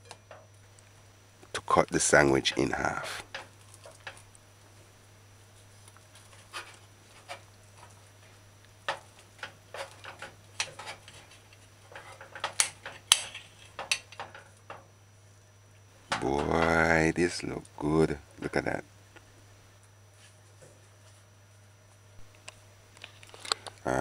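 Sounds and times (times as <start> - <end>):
knife scraping a plate: 9.7 - 12.4.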